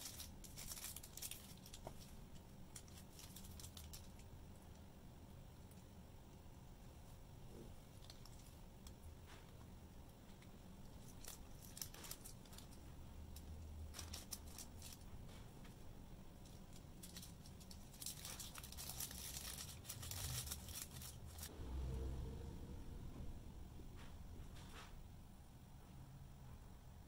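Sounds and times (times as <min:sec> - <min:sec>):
plastic sauce bag crinkling: 0:00.0 - 0:04.3, 0:10.9 - 0:15.1, 0:16.4 - 0:21.5
food wrapping rustling: 0:00.0 - 0:04.7, 0:07.9 - 0:09.6, 0:10.3 - 0:15.8, 0:16.4 - 0:21.5.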